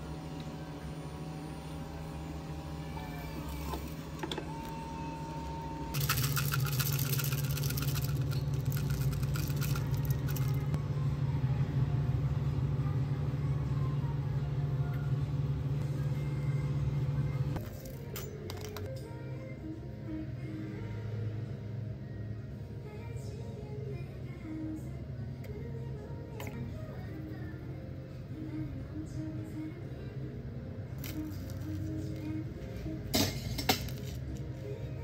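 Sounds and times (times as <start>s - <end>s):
small appliance motor running: 0.0s - 10.8s
clattering rattle: 6.0s - 10.7s, 33.1s - 34.2s.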